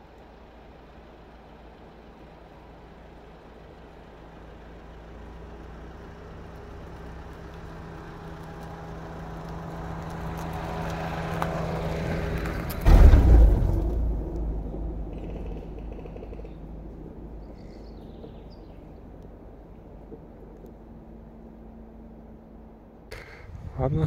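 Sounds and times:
vehicle engine running: 0.0 - 24.0
loud low thump: 12.8 - 17.4.

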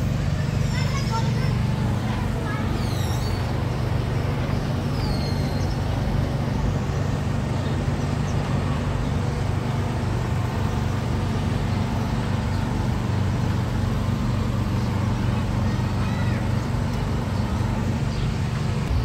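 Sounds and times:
machine drone: 0.0 - 19.0
bird chirp: 2.5 - 9.4, 14.6 - 19.0.

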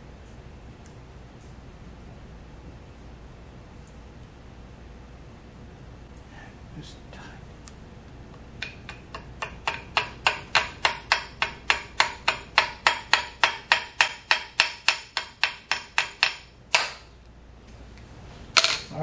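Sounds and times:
small hammer tapping metal: 8.6 - 17.1.

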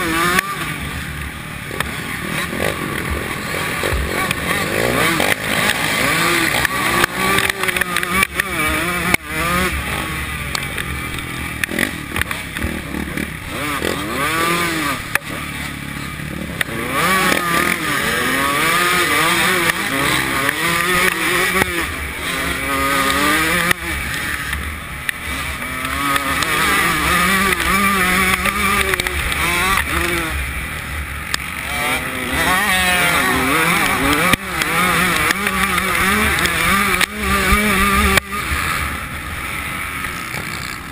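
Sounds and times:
motocross bike engine revving: 0.0 - 40.9.

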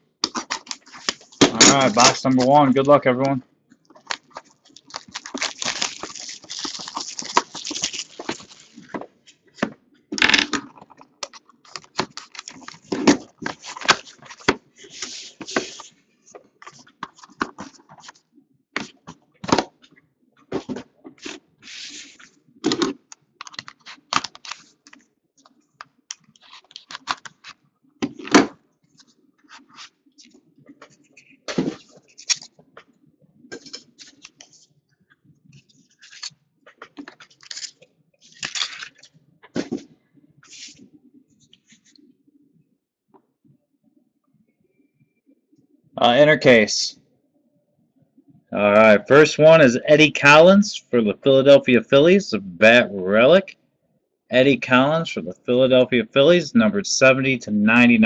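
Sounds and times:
tearing rustle: 4.1 - 8.9, 37.3 - 39.1.

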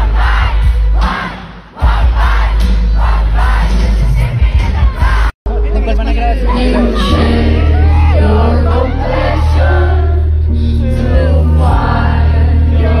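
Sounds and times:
deep sustained bass: 5.5 - 13.0
person singing into microphone: 6.2 - 13.0.

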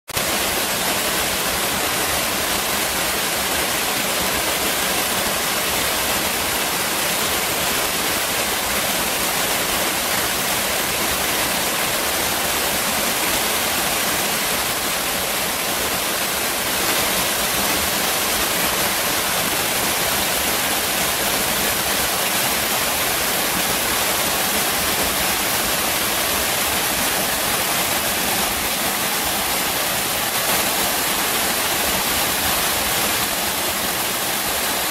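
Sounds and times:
whitewater rushing over rocks: 0.2 - 34.9.

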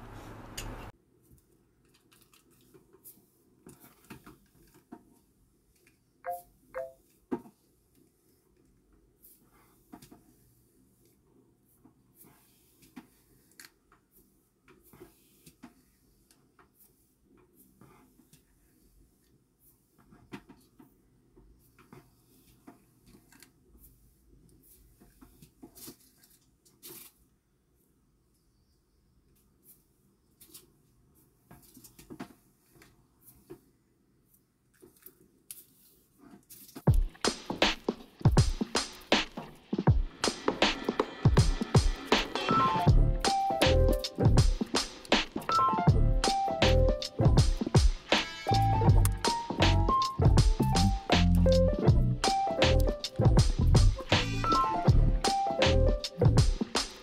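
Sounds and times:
objects being handled: 34.3 - 38.2.

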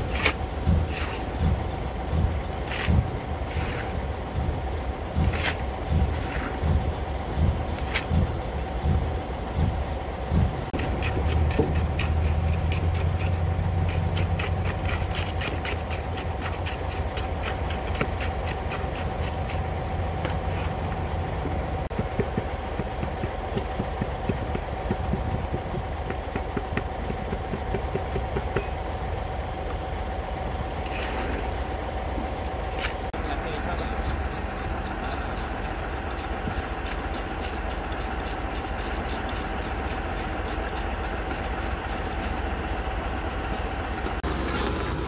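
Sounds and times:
diesel engine running: 0.0 - 45.0
tamping rod striking concrete: 2.6 - 3.9, 5.2 - 6.8, 10.7 - 19.6, 21.9 - 28.8.

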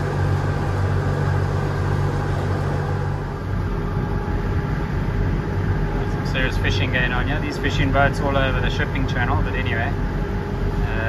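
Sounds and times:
boat engine humming: 0.0 - 11.0
water noise: 0.0 - 11.0.

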